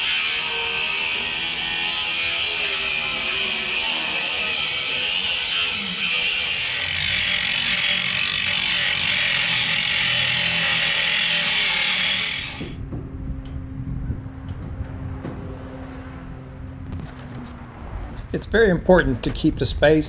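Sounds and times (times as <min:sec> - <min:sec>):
angle grinder grinding steel: 0:00.0 - 0:12.8.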